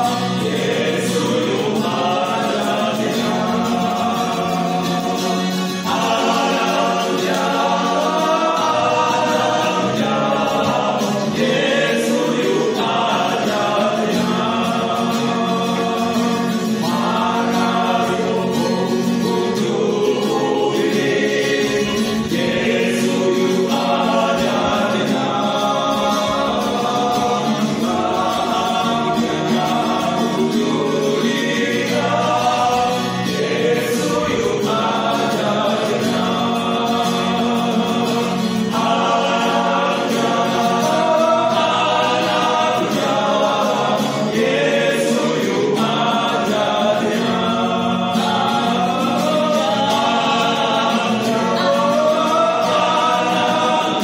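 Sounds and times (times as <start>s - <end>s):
acoustic guitar: 0.0s - 54.0s
male choir singing gospel: 0.0s - 54.0s.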